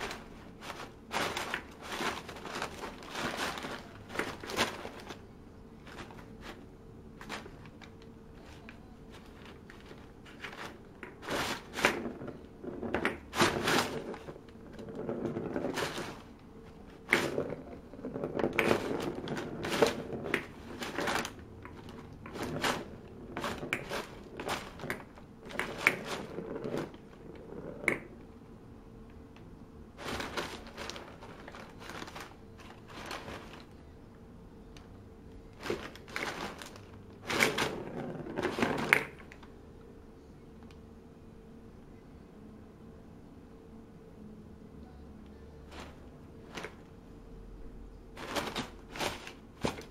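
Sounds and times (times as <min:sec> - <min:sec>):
wrapping paper crinkling: 0:00.0 - 0:27.5, 0:30.0 - 0:33.8, 0:35.6 - 0:39.5, 0:48.2 - 0:49.9.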